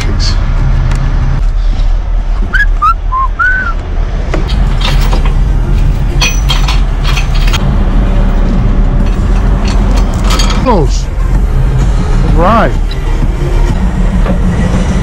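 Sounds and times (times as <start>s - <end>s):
short whistled notes: 2.5s - 3.8s.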